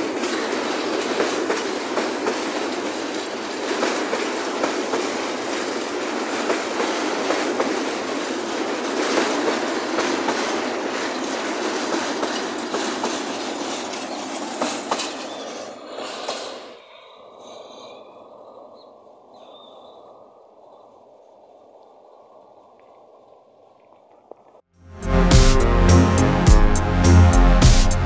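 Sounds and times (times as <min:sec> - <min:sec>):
train wheels clattering on rails: 0:00.0 - 0:16.9.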